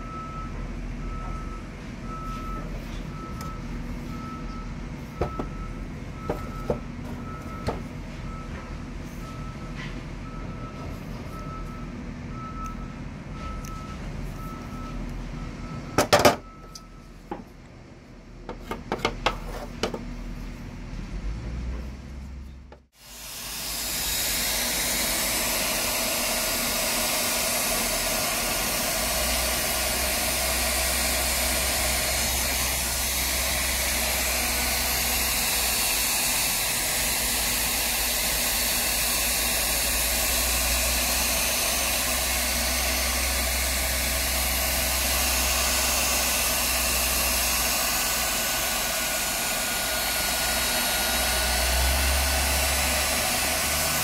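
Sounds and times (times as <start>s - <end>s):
hot air gun blower whine: 5.1s - 8.4s, 22.9s - 54.0s.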